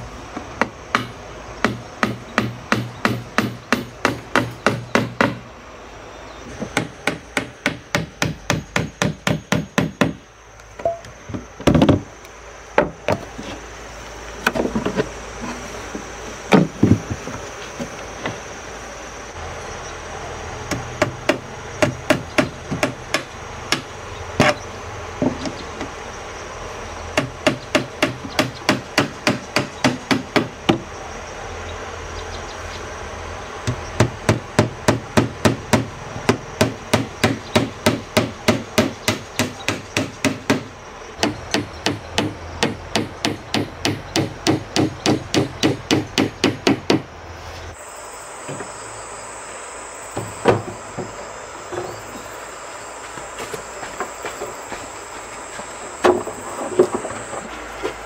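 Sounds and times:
hammer driving nails into wood: 33.7s - 47.1s.

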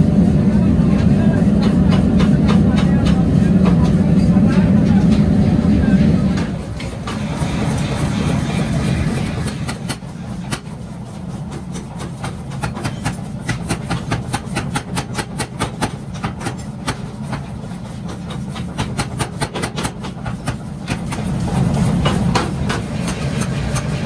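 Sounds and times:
steady low hum: 0.0s - 18.8s
power hammer striking hot metal: 1.0s - 24.0s.

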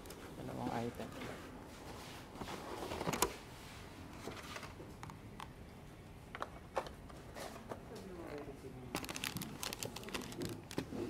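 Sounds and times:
plastic packaging clicks and knocks: 8.9s - 10.9s.

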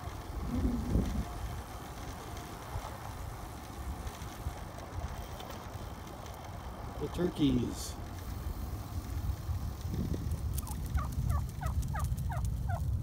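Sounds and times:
wind on microphone: 0.0s - 2.1s, 8.3s - 13.0s
bicycle tyre rumble on road: 0.0s - 13.0s.

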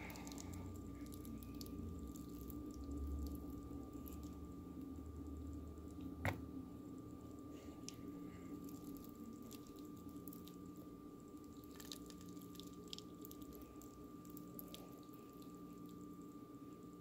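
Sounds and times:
steady low hum: 0.0s - 17.0s
wet clicks and crackles: 8.6s - 10.6s, 11.4s - 16.0s.

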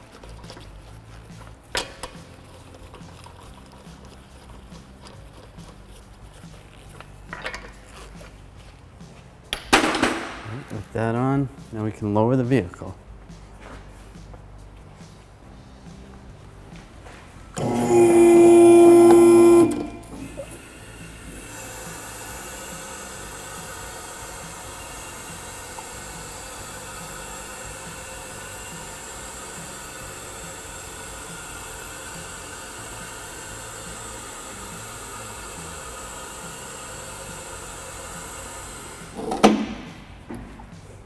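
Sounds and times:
loud metal clunk: 9.6s - 10.6s, 39.2s - 40.7s
vehicle lift hissing: 17.6s - 40.3s.

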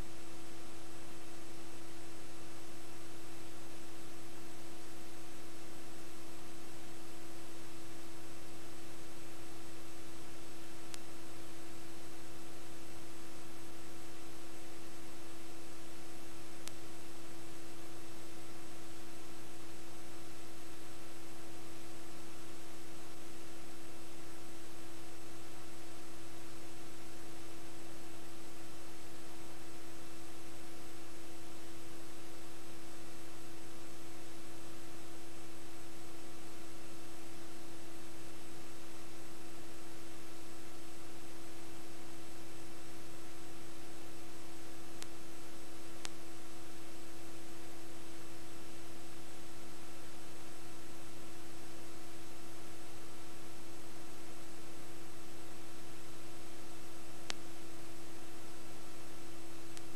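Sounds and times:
electrical hum and buzz: 0.0s - 59.9s
faint clicks: 16.6s - 17.0s, 42.0s - 48.8s, 59.6s - 59.9s.

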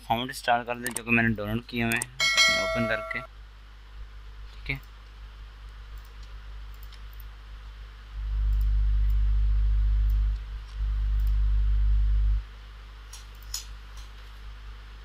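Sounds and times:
low hum: 5.4s - 13.5s
computer mouse clicks: 5.9s - 7.3s.

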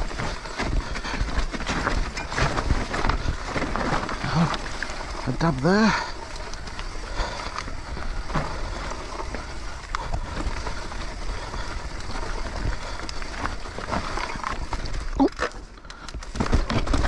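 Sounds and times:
bike frame rattling: 0.0s - 17.0s
bike tyres rolling over dirt and stones: 0.0s - 17.0s.

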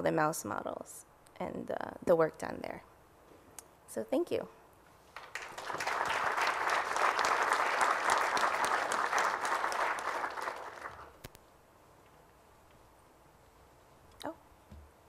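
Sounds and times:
audience applauding: 5.1s - 11.2s.

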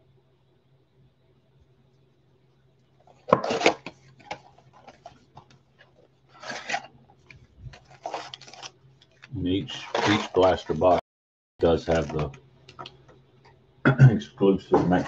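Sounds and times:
cardboard box tearing: 3.3s - 4.4s, 6.3s - 6.9s, 7.8s - 8.7s, 9.8s - 11.0s.

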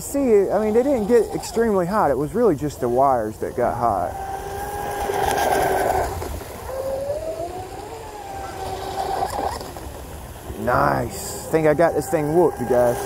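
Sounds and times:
electric motor whining: 3.8s - 9.9s, 11.3s - 13.0s.

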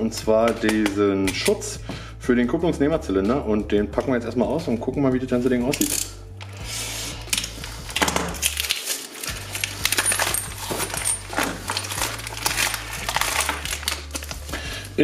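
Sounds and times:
plastic packaging crackling and tearing: 5.8s - 15.0s
metal parts clinking on wood: 8.4s - 13.8s.

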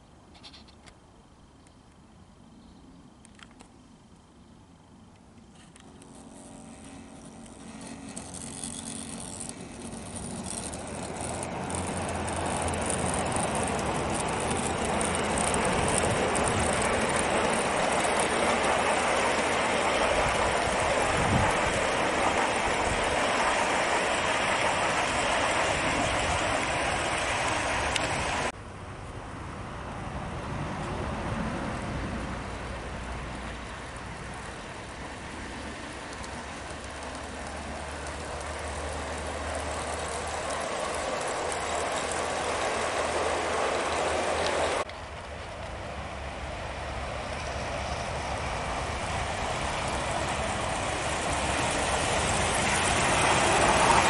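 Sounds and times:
model train wheels rumbling on rail: 5.0s - 28.6s, 29.9s - 54.0s.

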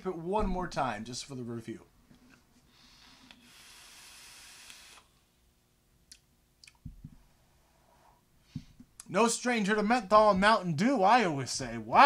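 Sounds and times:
soft low thumps: 0.4s - 1.0s
faint hiss of air drawn through vape: 2.7s - 5.3s.

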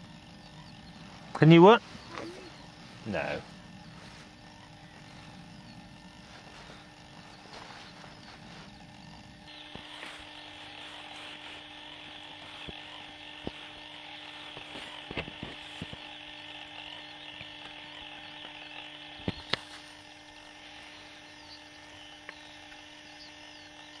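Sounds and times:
steady low hum: 0.0s - 24.0s
sharp clicks: 9.6s - 20.5s, 21.2s - 24.0s.

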